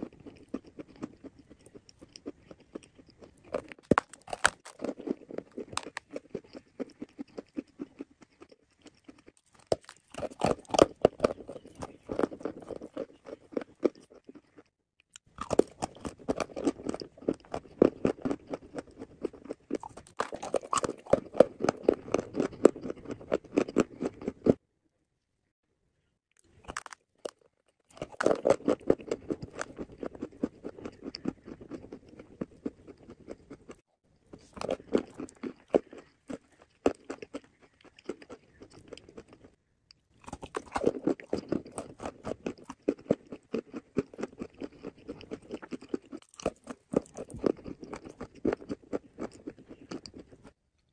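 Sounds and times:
clay being chewed crunching: 0.0 - 24.6, 26.3 - 50.9.

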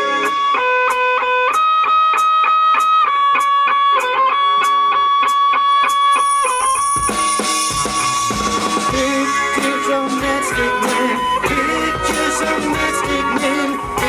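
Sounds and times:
electric guitar melody: 0.0 - 14.0
live rock band playing: 0.0 - 14.0
cymbals: 5.7 - 14.0.

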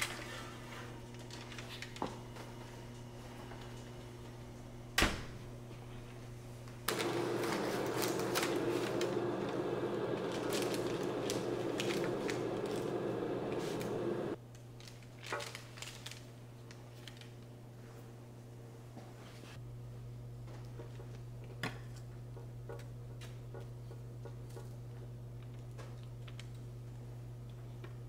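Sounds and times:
croissant crackling: 6.9 - 17.4
parchment paper rustling: 6.9 - 17.4.

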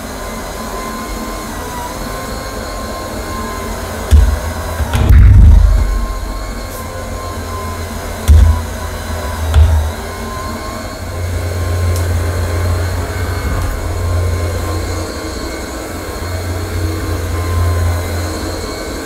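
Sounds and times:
floor cleaner motor hum: 0.0 - 19.0
short low thump: 4.1 - 6.8.

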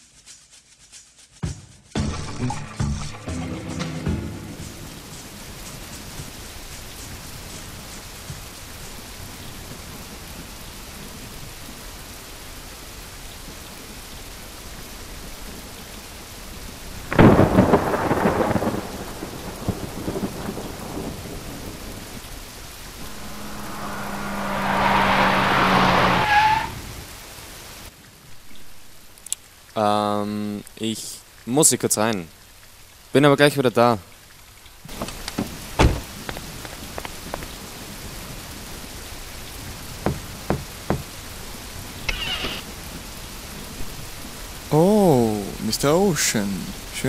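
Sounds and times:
heavy rain: 4.4 - 47.0
thunderclap rumbling: 17.1 - 22.2
car engine: 22.9 - 27.4
wet tyres hissing: 23.0 - 27.2.

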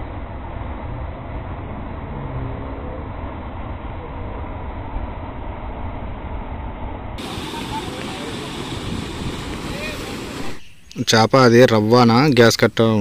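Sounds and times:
faint voices: 7.2 - 10.6
water rushing over weir: 7.2 - 10.7.

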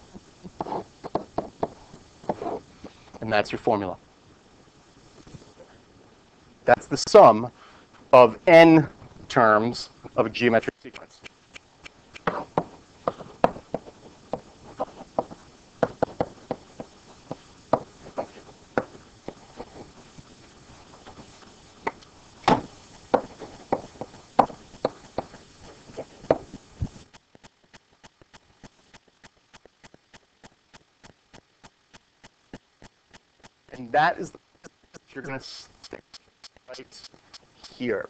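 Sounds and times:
pen tapping and scratching: 0.6 - 2.6, 11.8 - 20.0, 21.9 - 33.6.

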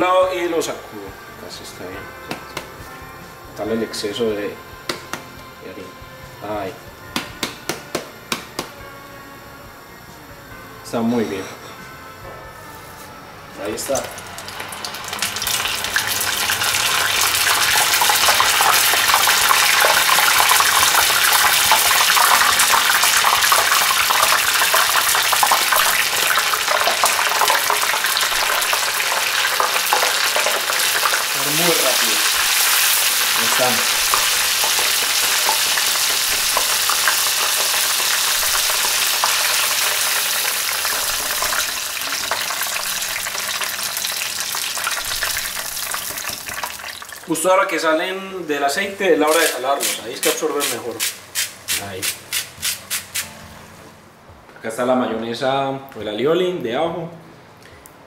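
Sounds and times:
squid deep-frying in oil: 13.9 - 47.3.

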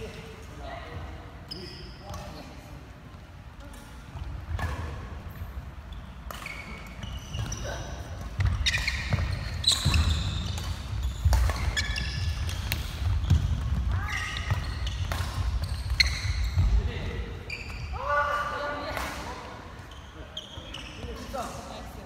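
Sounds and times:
shoes squeaking on court floor: 0.0 - 2.8, 3.7 - 18.1, 19.0 - 22.0
racket hitting shuttlecock: 8.2 - 16.2.

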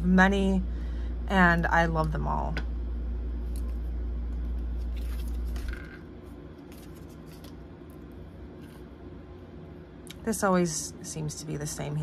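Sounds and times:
low hum: 0.0 - 12.0
cards clicking and rustling: 4.7 - 6.0, 6.6 - 8.0.

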